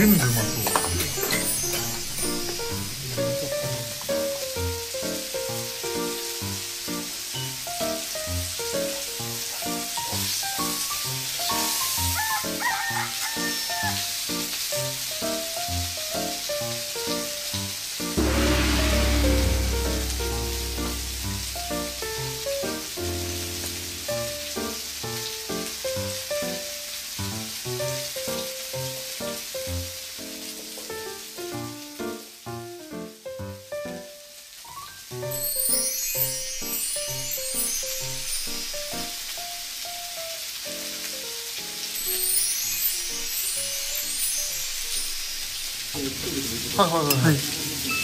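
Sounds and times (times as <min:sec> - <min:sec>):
background music: 0:00.0 - 0:07.5, 0:18.2 - 0:24.8
food sizzling on a griddle: 0:00.0 - 0:18.2, 0:21.8 - 0:48.0
background music with bass: 0:18.2 - 0:24.1.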